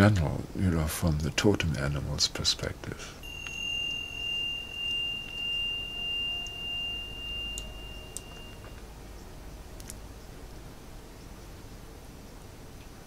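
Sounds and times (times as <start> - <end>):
chime ringing high tone: 3.2 - 9.6.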